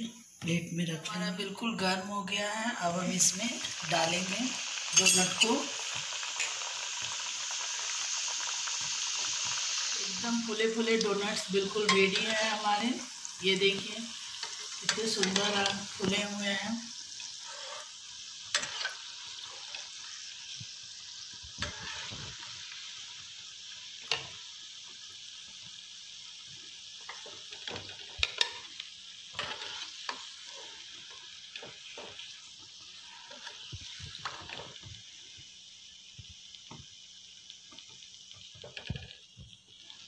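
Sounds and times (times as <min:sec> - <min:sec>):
oil sizzling: 0:01.1 - 0:40.0
metal spatula scraping pan: 0:17.2 - 0:17.9, 0:18.5 - 0:19.9, 0:21.6 - 0:22.3, 0:29.3 - 0:30.8.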